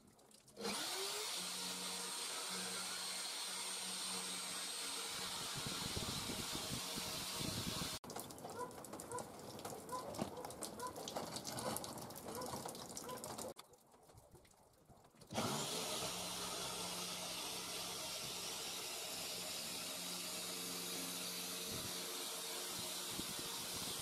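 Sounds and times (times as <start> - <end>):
electric router milling wood: 0.6 - 8.0, 15.3 - 24.0.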